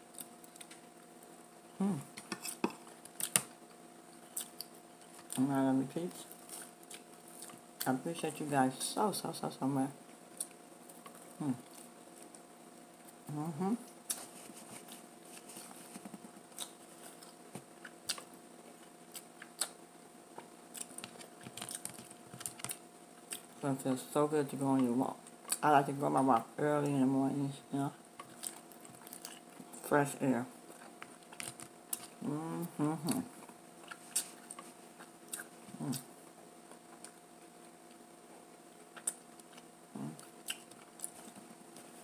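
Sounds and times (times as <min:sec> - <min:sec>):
close chewing with mouth clicks: 0:04.2 - 0:05.4, 0:06.3 - 0:07.9, 0:13.9 - 0:23.6, 0:28.2 - 0:29.8, 0:30.7 - 0:32.2, 0:33.0 - 0:36.1, 0:38.8 - 0:42.0.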